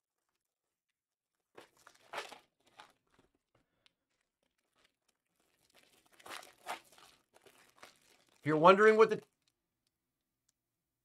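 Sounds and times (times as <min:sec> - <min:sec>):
wrappers tearing and crinkling: 0:01.6 - 0:08.6, 0:09.2 - 0:09.6.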